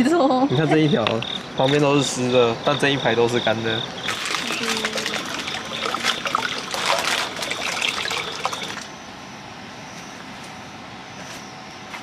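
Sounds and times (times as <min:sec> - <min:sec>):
water pouring into a pot: 0:04.0 - 0:08.9.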